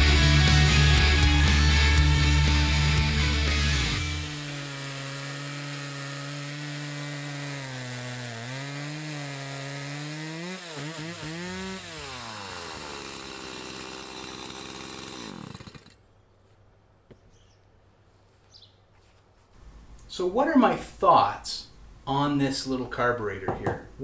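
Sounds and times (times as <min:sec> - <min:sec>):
chainsaw cutting a log: 0:00.0 - 0:16.0.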